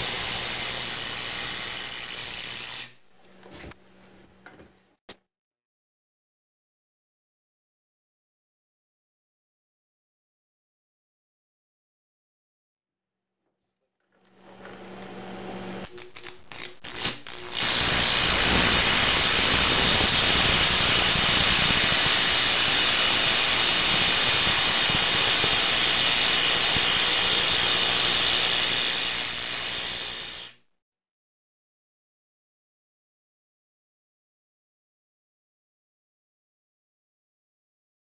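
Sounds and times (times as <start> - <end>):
arc torch crackling hiss: 0.0 - 3.0, 15.9 - 30.6.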